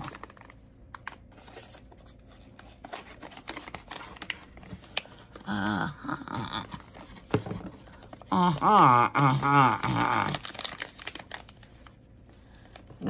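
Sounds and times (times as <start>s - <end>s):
plastic packaging rustling: 0.0s - 5.6s, 6.5s - 13.0s
person humming: 5.4s - 7.0s, 8.3s - 10.5s.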